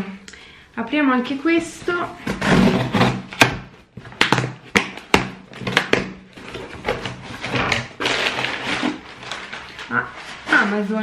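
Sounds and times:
paper packing rustling: 6.4 - 11.0.

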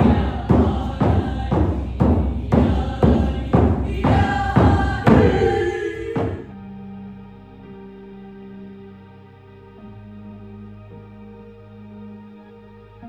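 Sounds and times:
frame drum beating: 0.0 - 6.5
group singing: 0.0 - 6.6
soft ambient music: 0.0 - 13.0.

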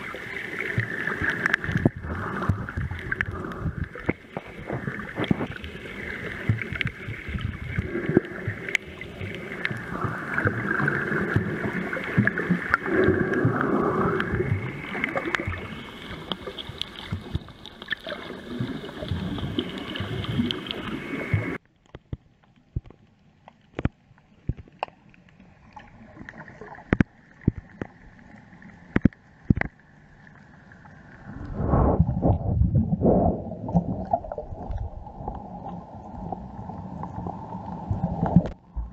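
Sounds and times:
water rushing and gurgling: 0.0 - 22.0, 23.1 - 38.9
sharp clicks underwater: 0.2 - 28.1, 28.8 - 29.9, 38.2 - 38.9.

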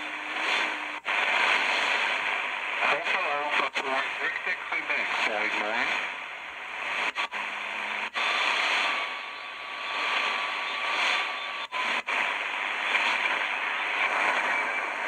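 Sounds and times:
shortwave radio hiss and static: 0.0 - 15.0.

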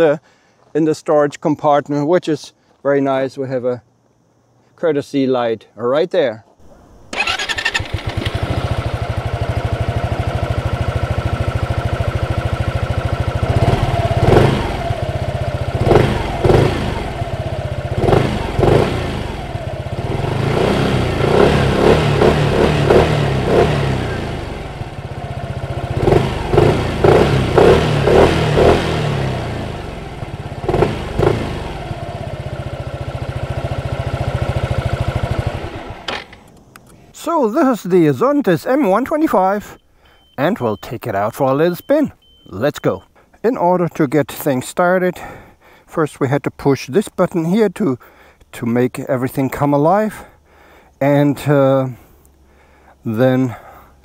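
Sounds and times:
scooter engine idling and revving: 7.1 - 36.4.

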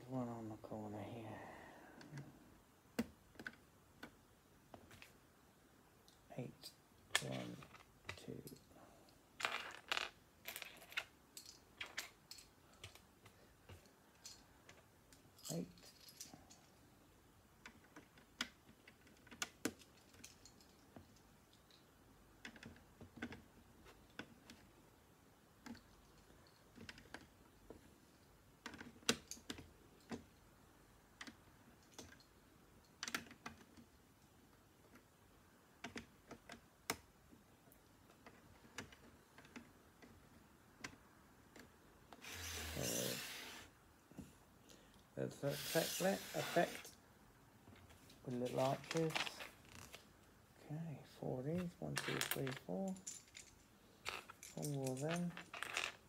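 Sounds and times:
plastic bricks clicking together: 52.0 - 56.0.

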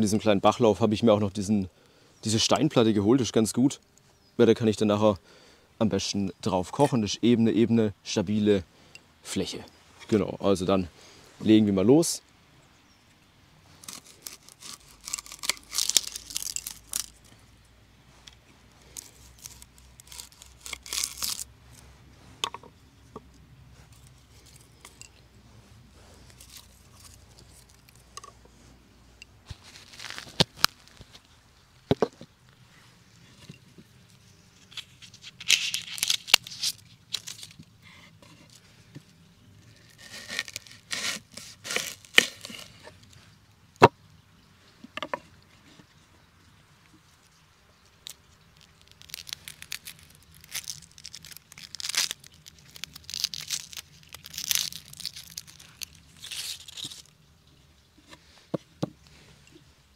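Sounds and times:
onion skin crackling and tearing: 13.7 - 17.5, 18.2 - 21.8, 26.2 - 28.2, 29.4 - 31.4, 34.5 - 38.7, 39.6 - 43.2, 47.3 - 57.3.

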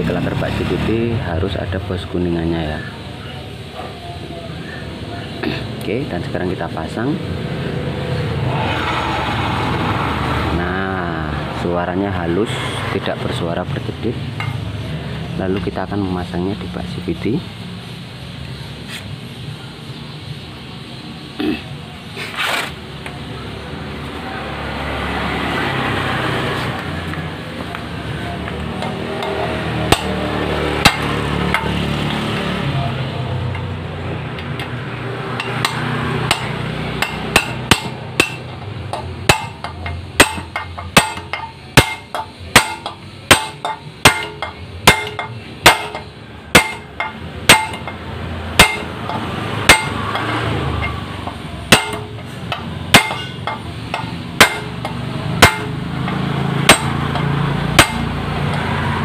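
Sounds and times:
hammer striking metal: 14.4 - 14.6, 28.5 - 32.2, 34.4 - 59.0.

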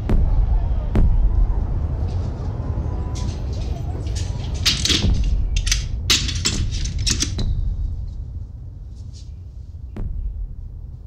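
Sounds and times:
low rumble: 0.0 - 8.9
wooden window scraping and rattling: 3.2 - 7.5.

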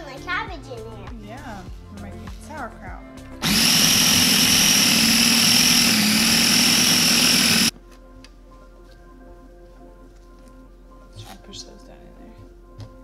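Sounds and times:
food processor motor shredding: 3.4 - 7.7.

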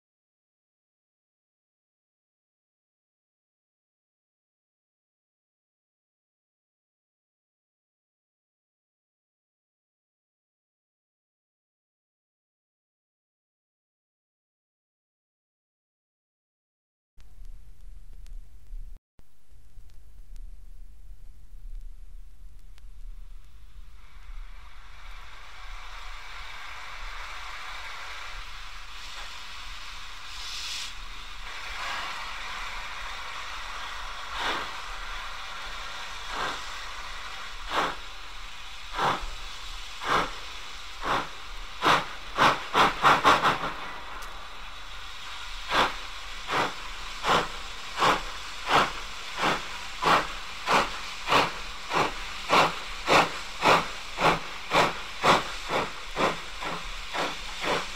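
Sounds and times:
steam locomotive exhaust beats: 19.9 - 57.9
steam hiss: 23.0 - 57.9.

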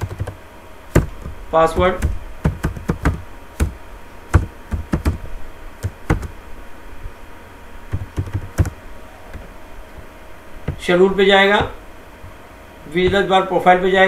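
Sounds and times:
computer keyboard typing: 0.0 - 0.4, 1.0 - 5.2, 5.8 - 6.3, 7.9 - 8.8.

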